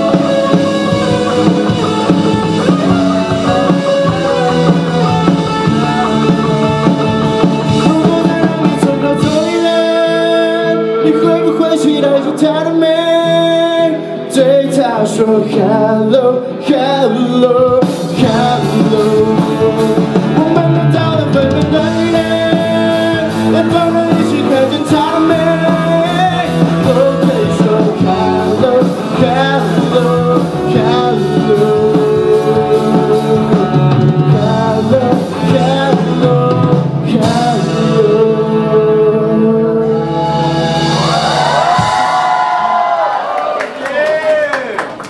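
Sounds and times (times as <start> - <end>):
people singing along: 0.0 - 9.7
man singing lead: 0.0 - 42.3
electric guitar: 0.0 - 43.2
drums: 0.0 - 45.0.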